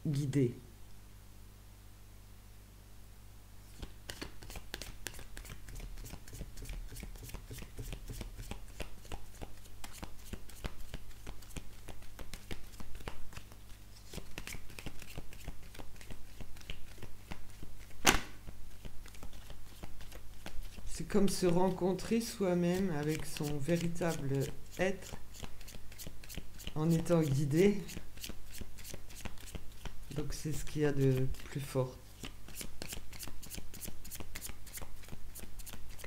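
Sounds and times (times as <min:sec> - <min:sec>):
cards being shuffled: 0:03.6 - 0:36.0.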